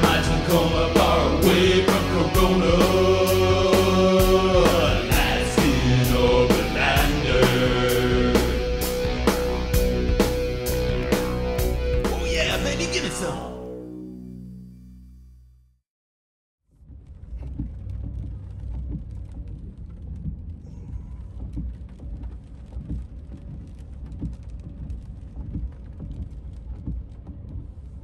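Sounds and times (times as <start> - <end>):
low road rumble: 16.7 - 28.0
rain on windshield and roof: 17.4 - 28.0.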